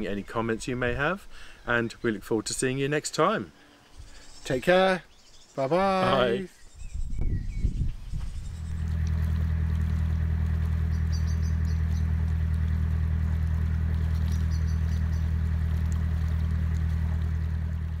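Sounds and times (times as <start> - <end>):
boat diesel engine chugging: 8.5 - 18.0
faint bird chirps: 10.8 - 12.1, 14.2 - 15.3.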